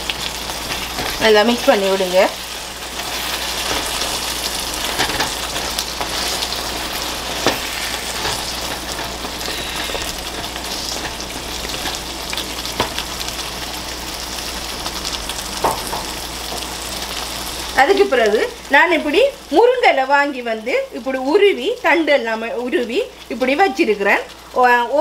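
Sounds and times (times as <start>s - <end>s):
curry sizzling in a pan: 0.0s - 25.0s
spatula knocking on pan: 15.6s - 16.2s.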